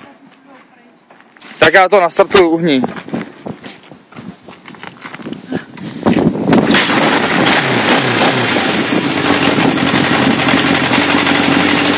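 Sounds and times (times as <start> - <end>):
motorcycle engine kick-started: 6.5 - 11.9
motorcycle engine idling: 8.3 - 11.9.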